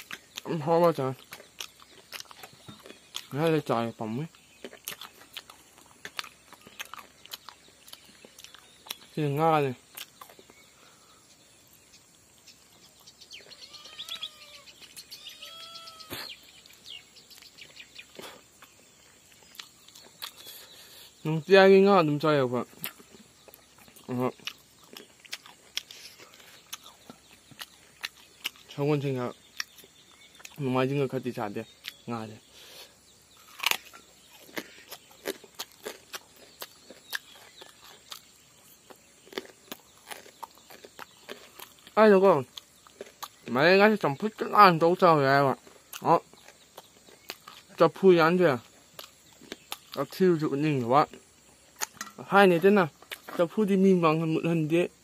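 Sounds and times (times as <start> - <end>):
person chewing: 0.0 - 9.2, 9.8 - 11.0, 12.7 - 21.2, 22.7 - 28.8, 29.4 - 30.6, 31.8 - 43.6, 45.5 - 47.8, 48.6 - 50.2, 51.0 - 52.2, 52.9 - 53.5
birds calling and chirping: 0.0 - 55.0.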